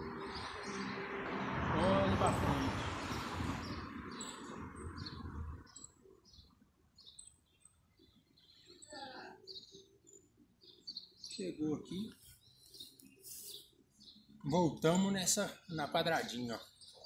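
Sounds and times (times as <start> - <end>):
small birds chirping: 0.0 - 17.0
rushing noise with low rumble: 1.1 - 5.7.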